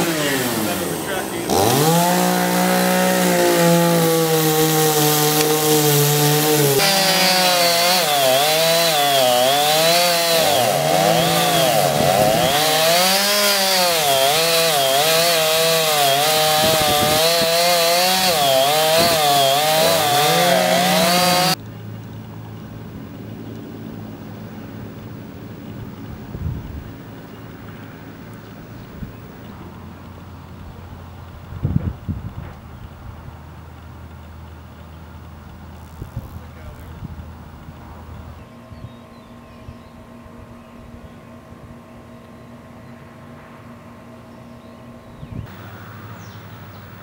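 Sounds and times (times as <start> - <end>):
chainsaw cutting wood: 0.0 - 21.6, 33.7 - 38.1
low steady rumble: 21.6 - 39.0.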